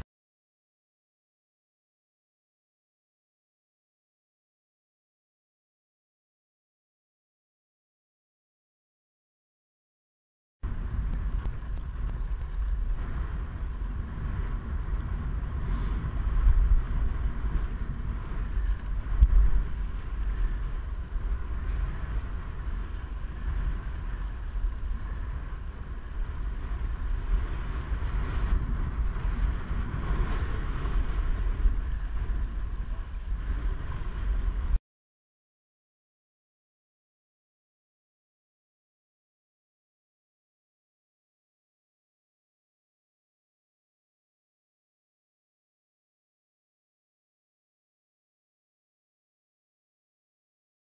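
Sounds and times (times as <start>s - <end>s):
wind buffeting microphone: 10.6s - 34.8s.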